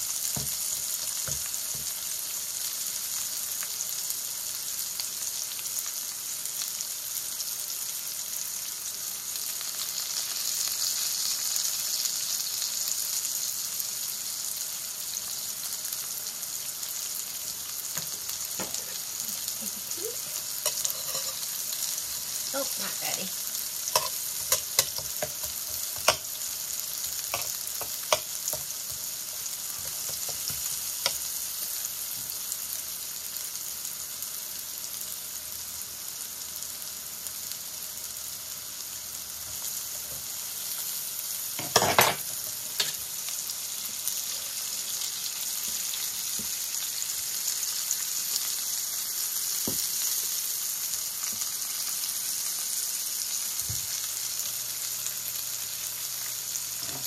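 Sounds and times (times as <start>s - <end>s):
squash sizzling in butter: 0.0s - 57.0s
knife clicking on pan: 23.9s - 26.2s.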